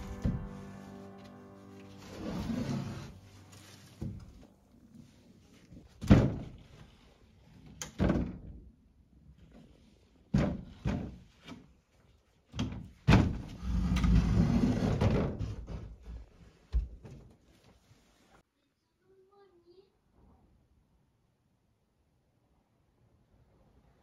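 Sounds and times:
wooden panel scraping floorboards: 0:00.0 - 0:07.6, 0:13.2 - 0:16.4
wooden knocks and thuds: 0:06.0 - 0:06.8, 0:10.3 - 0:11.3.

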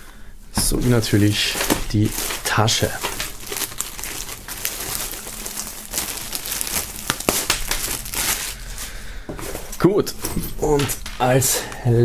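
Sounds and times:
plastic bag crinkling: 0:00.6 - 0:09.8.

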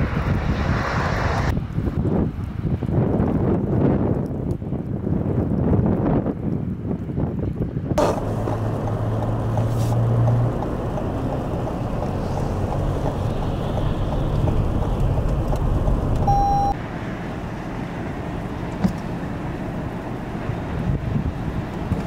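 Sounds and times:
blizzard wind buffeting microphone: 0:00.0 - 0:22.0
vehicle engine hum: 0:00.0 - 0:22.0
short electronic beep: 0:16.2 - 0:16.8.

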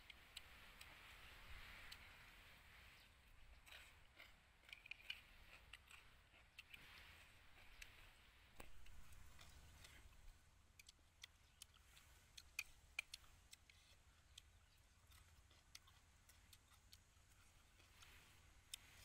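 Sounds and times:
faint low rumble: 0:00.0 - 0:19.0
chopsticks clicking on plate: 0:12.4 - 0:18.1.

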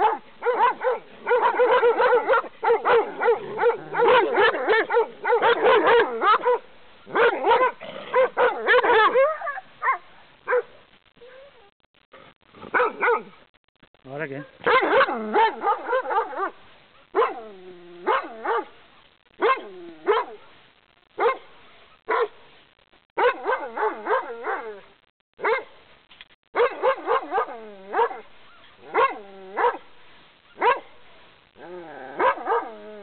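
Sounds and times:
dog barking fiercely: 0:00.0 - 0:10.7, 0:12.6 - 0:13.4, 0:14.3 - 0:18.7, 0:21.2 - 0:21.5, 0:22.1 - 0:22.4, 0:23.2 - 0:24.7, 0:25.4 - 0:25.7, 0:26.6 - 0:29.9, 0:30.6 - 0:30.9, 0:32.2 - 0:32.8.

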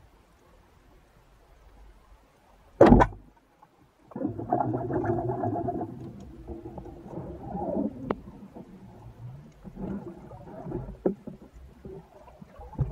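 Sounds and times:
rough rumbling noise: 0:04.2 - 0:12.9.

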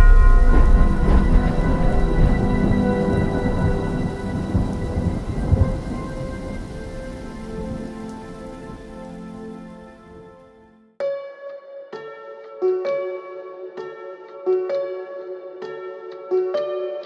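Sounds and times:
sustained ringing tones: 0:00.0 - 0:07.1
low thunder-like rumble: 0:00.0 - 0:08.8
rain-like hiss: 0:00.0 - 0:10.6.

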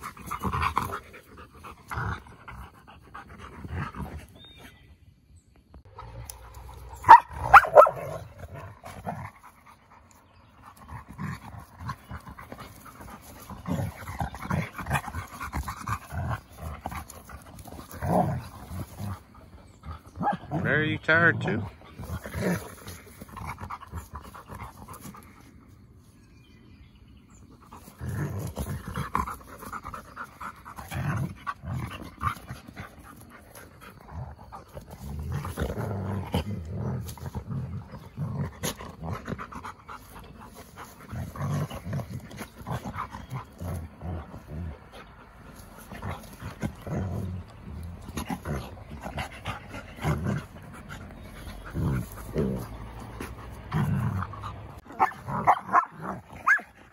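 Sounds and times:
pups panting and play-growling: 0:00.0 - 0:56.9
bodies rustling on grass: 0:10.7 - 0:20.1, 0:21.9 - 0:26.4, 0:27.6 - 0:56.4.

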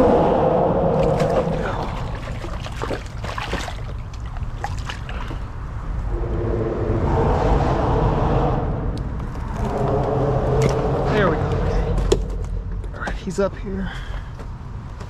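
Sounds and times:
traffic rumble on bridge: 0:00.0 - 0:15.0
water splashing: 0:00.8 - 0:05.7.

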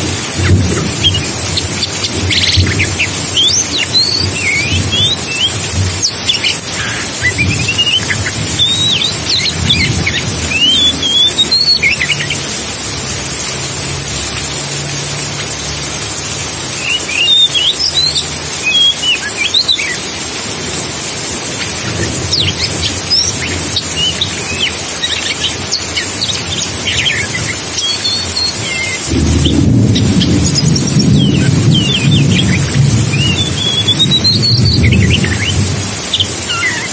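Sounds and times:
rushing hiss with low rumble: 0:00.0 - 0:36.9
bird singing whistled notes: 0:01.0 - 0:12.5, 0:16.8 - 0:20.0, 0:21.6 - 0:36.9.

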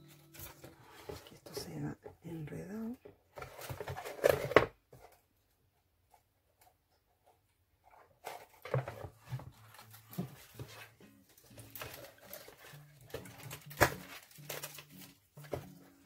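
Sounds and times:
paper rustling: 0:00.0 - 0:01.6, 0:08.2 - 0:16.0.

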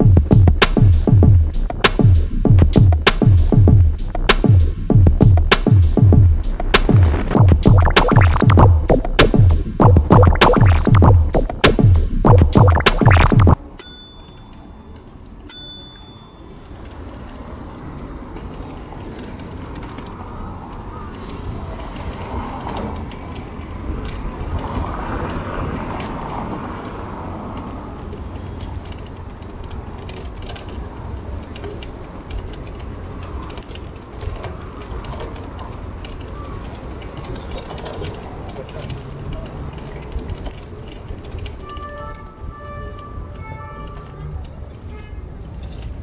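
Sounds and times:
light mechanical bike clicks: 0:13.8 - 0:42.3
bicycle rolling rumble and wind: 0:14.7 - 0:46.0.

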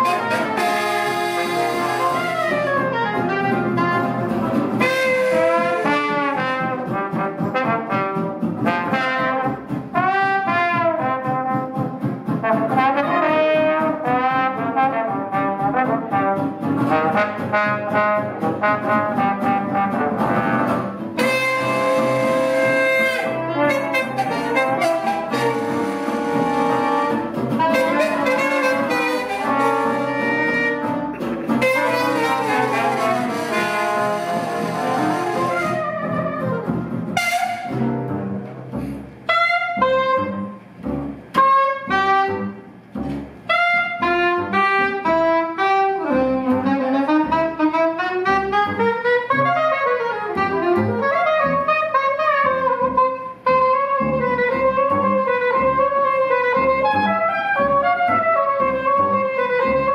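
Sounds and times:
soprano saxophone solo: 0:00.0 - 0:04.2, 0:04.8 - 0:09.4, 0:20.7 - 0:37.9, 0:39.2 - 0:40.6, 0:41.3 - 0:42.7, 0:43.5 - 0:59.9
jazz band playing: 0:00.0 - 0:59.9.

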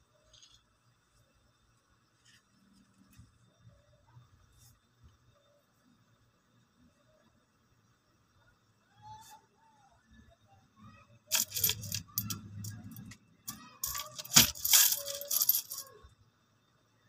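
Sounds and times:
coins jingling and clinking: 0:11.3 - 0:16.0.

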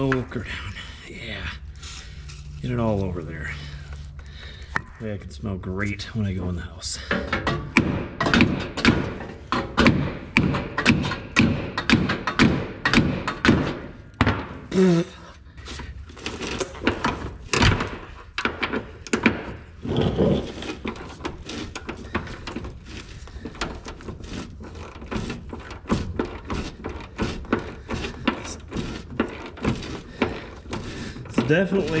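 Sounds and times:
hand tools knocking on metal: 0:07.0 - 0:14.5.

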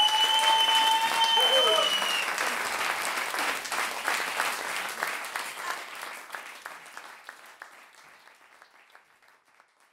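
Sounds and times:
audience applause: 0:00.0 - 0:09.9.

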